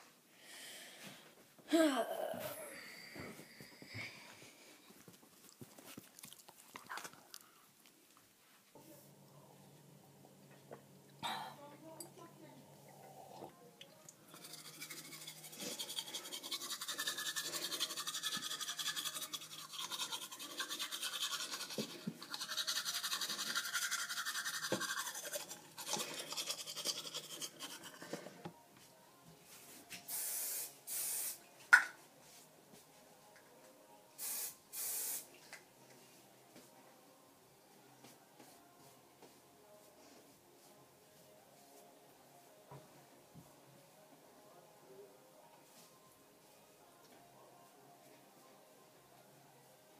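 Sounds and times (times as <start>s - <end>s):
toothbrush scrubbing teeth: 14.3s - 28.2s
short hissing bursts: 30.1s - 31.4s, 34.2s - 35.3s.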